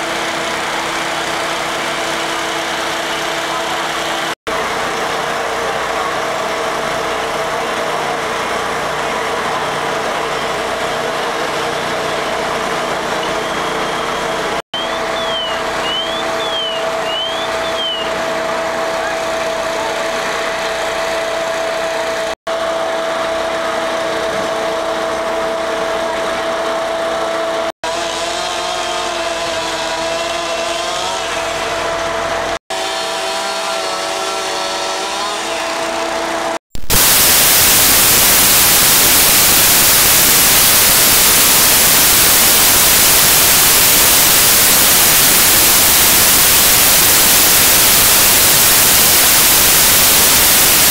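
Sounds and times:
fire engines droning: 0.0 - 50.9
static hiss: 36.8 - 50.9.

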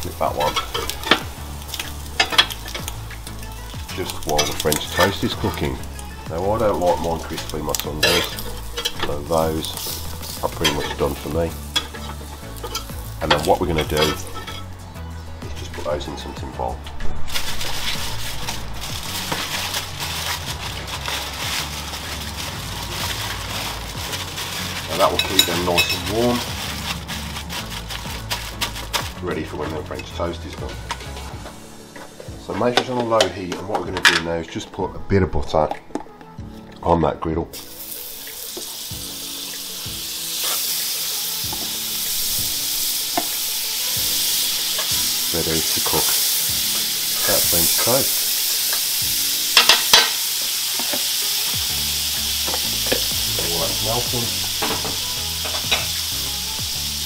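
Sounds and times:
aluminium foil crinkling: 0.0 - 14.6, 17.2 - 33.0, 37.6 - 57.0
butter sizzling on a hot griddle: 0.0 - 14.7, 37.5 - 57.0.

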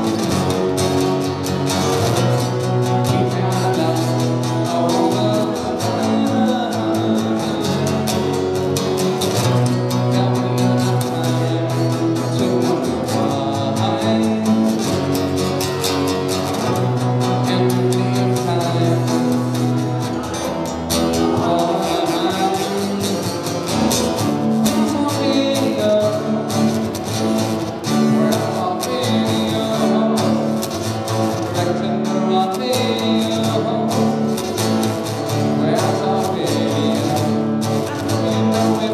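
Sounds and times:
acoustic guitar strumming: 0.0 - 38.9
man singing: 0.0 - 38.9.

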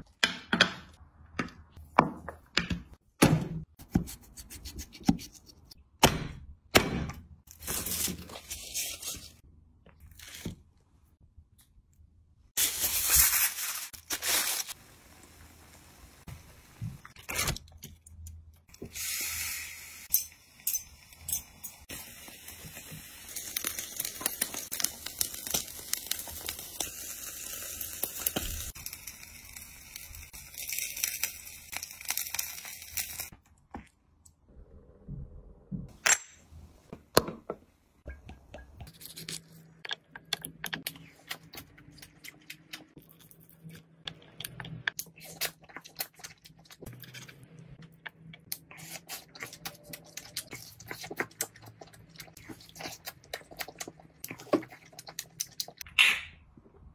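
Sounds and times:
aluminium foil crinkling and tearing: 7.5 - 9.4, 12.6 - 14.8, 29.9 - 33.3
meat sizzling on a grill: 21.9 - 33.3.

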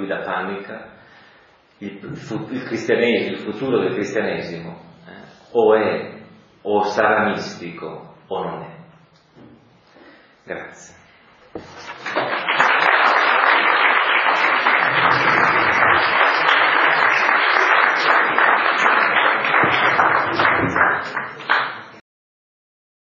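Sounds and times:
audience applauding: 11.9 - 22.0.

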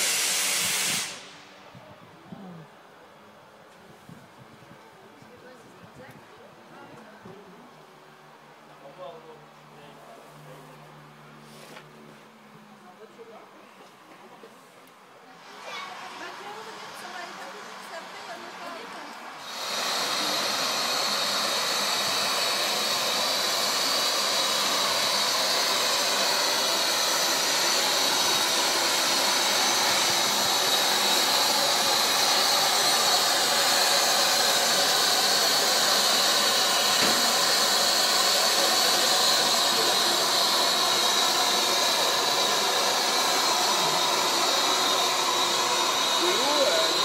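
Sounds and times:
steam locomotive venting steam: 0.0 - 2.6, 11.3 - 12.3, 15.2 - 47.0.

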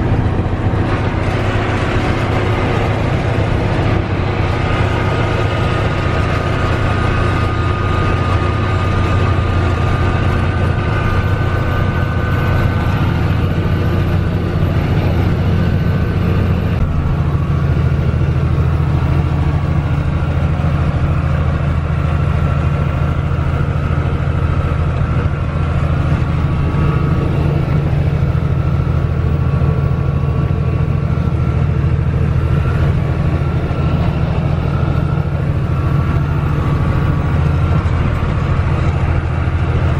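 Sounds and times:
diesel truck engine drone: 0.0 - 39.9
road noise: 0.0 - 39.9.

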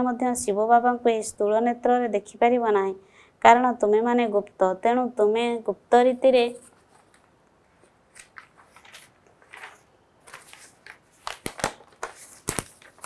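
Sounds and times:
paper crackling: 6.6 - 13.0
paper rustling and crinkling: 6.6 - 13.0.

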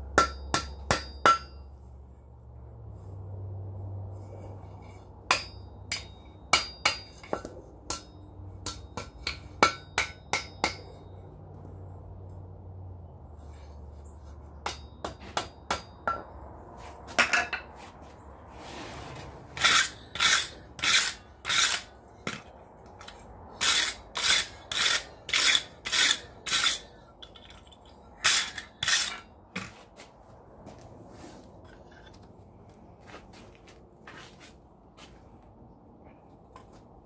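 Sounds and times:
hammer ringing on anvil: 0.2 - 1.7, 5.3 - 11.1.

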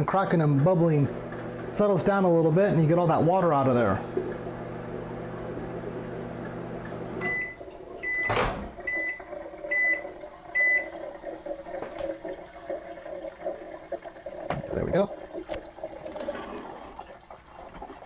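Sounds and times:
microwave oven humming: 0.5 - 12.0.

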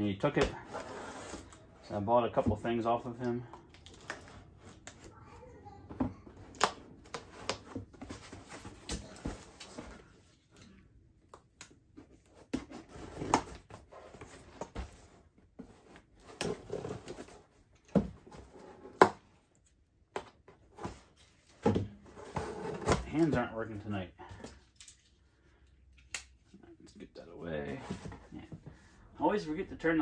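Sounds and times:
cardboard scraping and rustling: 0.6 - 1.6, 20.4 - 23.5.

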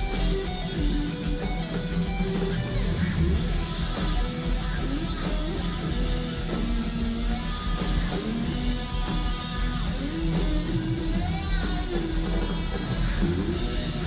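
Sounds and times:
live hard rock band: 0.0 - 14.0.

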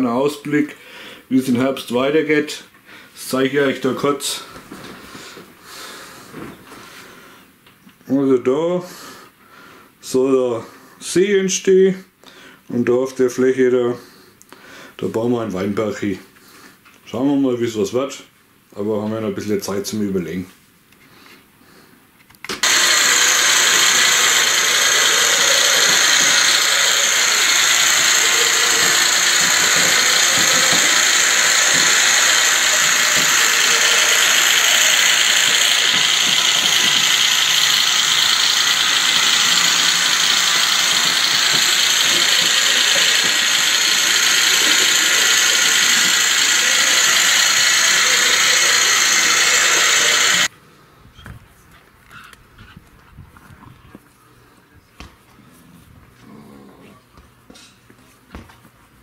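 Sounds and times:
model train whirring and rattling: 22.5 - 50.5.

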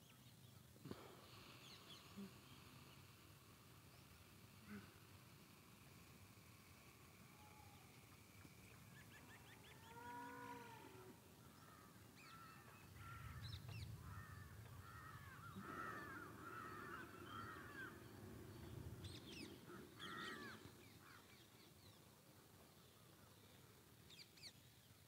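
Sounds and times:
birds chirping: 0.0 - 25.0
cow mooing: 9.8 - 11.2.

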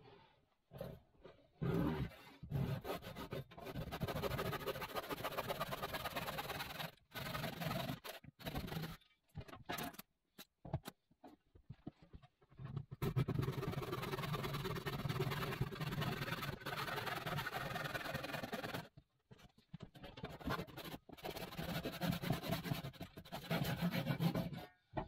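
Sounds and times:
hand saw cutting wood: 1.7 - 9.0, 20.4 - 24.7.

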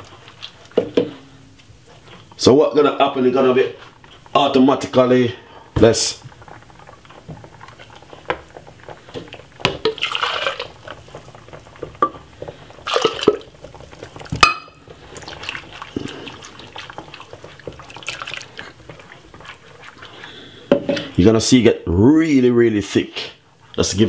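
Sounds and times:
whisk clicking against pot: 5.8 - 20.0
liquid sloshing and splashing: 6.2 - 21.1.

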